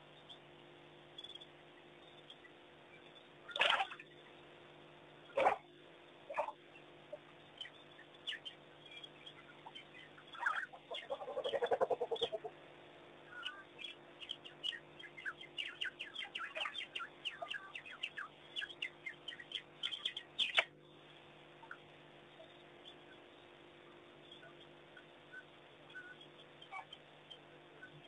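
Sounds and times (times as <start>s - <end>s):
wild dogs twittering: 5.3s - 5.7s, 6.3s - 7.2s, 9.6s - 12.5s, 26.0s - 27.0s
pulsed chattering call: 9.6s - 12.5s, 13.3s - 20.6s.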